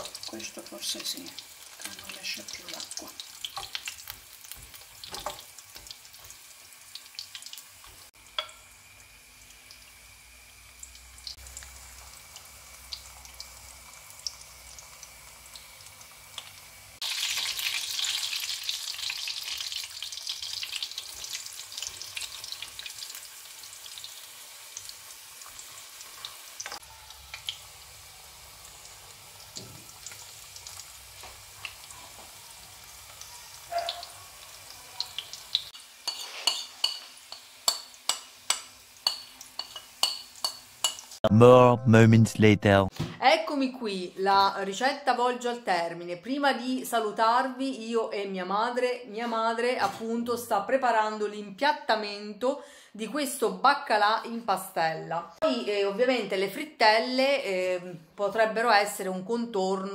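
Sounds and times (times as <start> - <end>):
fritters sizzling in oil: 0.0 - 41.2.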